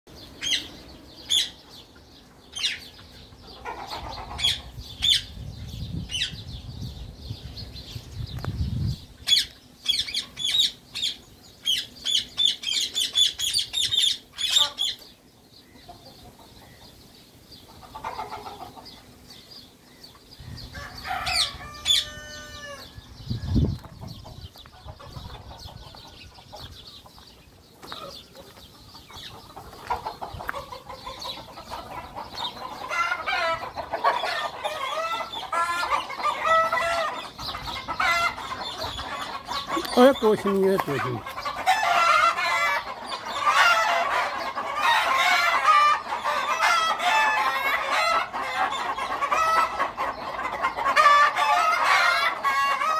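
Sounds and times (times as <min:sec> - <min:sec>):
chickens clucking: 0:00.1 - 0:52.9
falling bird calls: 0:00.1 - 0:52.9
parakeets squawking: 0:03.5 - 0:05.4, 0:09.3 - 0:15.0, 0:28.9 - 0:52.3.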